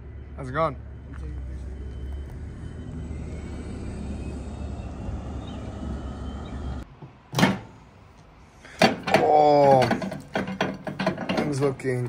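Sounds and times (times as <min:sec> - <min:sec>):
car road noise rumble: 0:00.0 - 0:06.9.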